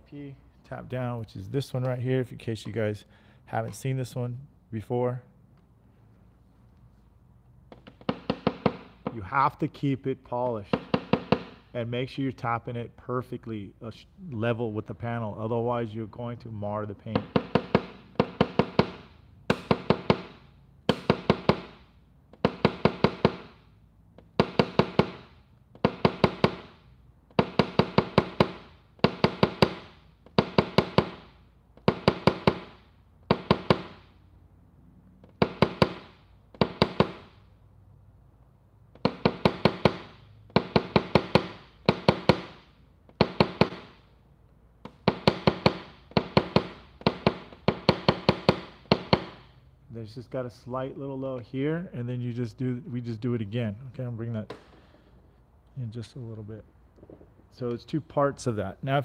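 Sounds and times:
hammer tapping car body panel: 0:07.7 - 0:09.2, 0:10.8 - 0:11.6, 0:17.1 - 0:23.6, 0:24.2 - 0:34.0, 0:35.2 - 0:37.3, 0:39.0 - 0:44.0, 0:44.8 - 0:49.4.

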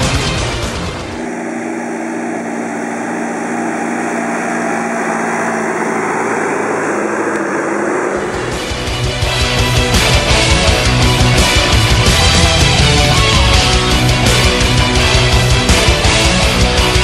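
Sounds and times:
music: 0:00.0 - 0:01.2, 0:08.2 - 0:17.0
tractor engine running: 0:00.0 - 0:17.0.

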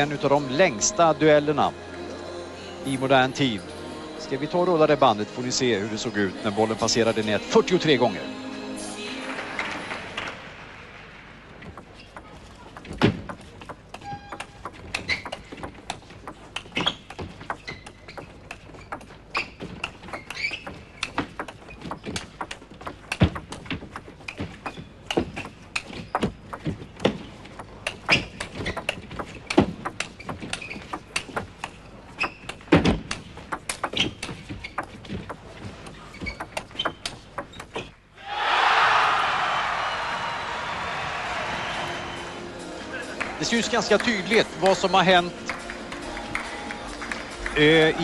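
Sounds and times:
ball bouncing on table: 0:11.6 - 0:37.9
table tennis ball clicking: 0:11.6 - 0:37.9.

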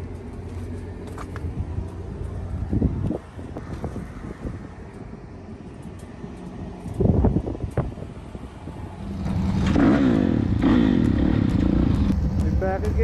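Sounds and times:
low rumble: 0:00.0 - 0:13.0
dirt bike engine revving: 0:09.0 - 0:13.0.

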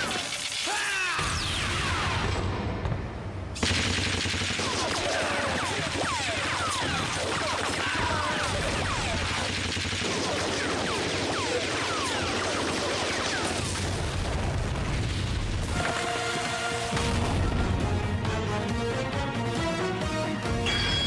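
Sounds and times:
rapid gunfire: 0:00.0 - 0:02.3, 0:03.6 - 0:17.3
music: 0:15.7 - 0:21.0.

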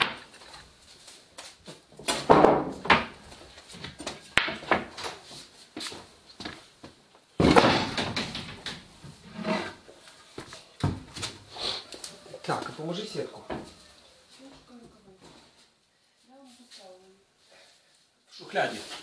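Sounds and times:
knocks and scrapes of handling: 0:07.9 - 0:11.4.

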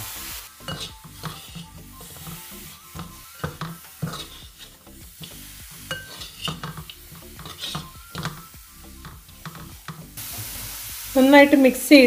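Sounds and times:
meat sizzling: 0:00.0 - 0:12.0
spatula scraping metal pot: 0:00.6 - 0:10.2.

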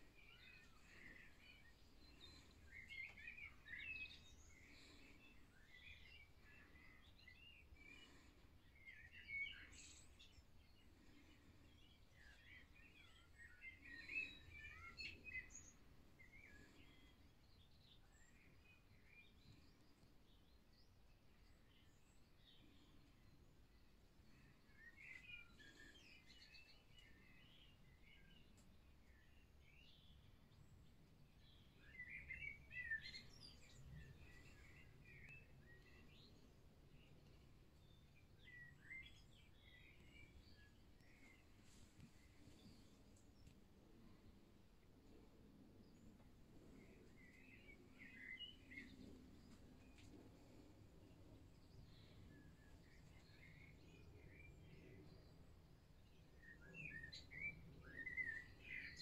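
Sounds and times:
faint birdsong chirping: 0:00.0 - 0:59.0.

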